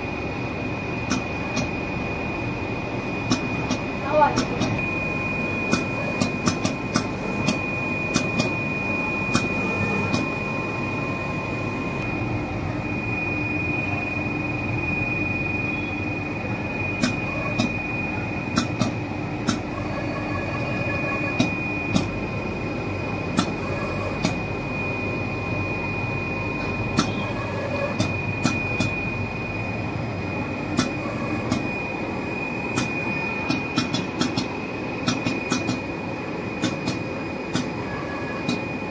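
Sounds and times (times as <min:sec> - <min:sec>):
sharp machine clicks: 0:01.0 - 0:01.8, 0:03.2 - 0:04.8, 0:05.6 - 0:08.6, 0:09.3 - 0:10.3, 0:17.0 - 0:17.8, 0:18.5 - 0:22.2, 0:23.2 - 0:24.5, 0:26.9 - 0:29.0, 0:30.7 - 0:31.7, 0:32.7 - 0:35.9, 0:36.5 - 0:38.9.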